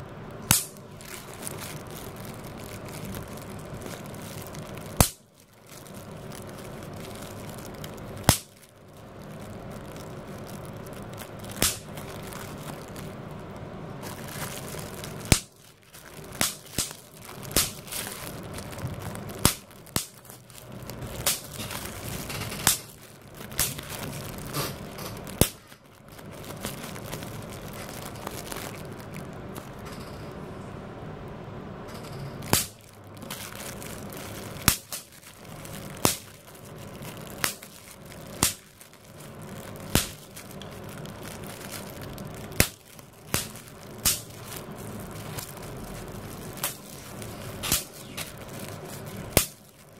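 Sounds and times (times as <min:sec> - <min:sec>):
bubble wrap popping: 0:00.0 - 0:29.9, 0:32.4 - 0:49.9
plastic sheet crinkling: 0:00.0 - 0:30.2, 0:32.0 - 0:49.9.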